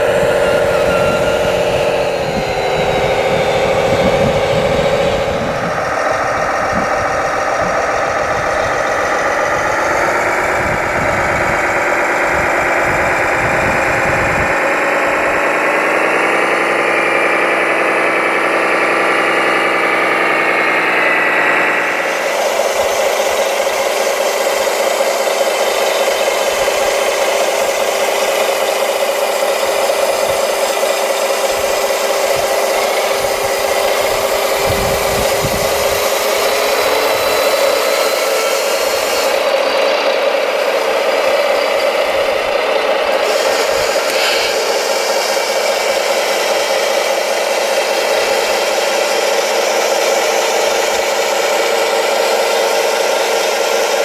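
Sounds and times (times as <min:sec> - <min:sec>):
model tractor drive whining: 0:00.0 - 0:54.0
mechanical hum with hiss: 0:40.8 - 0:54.0.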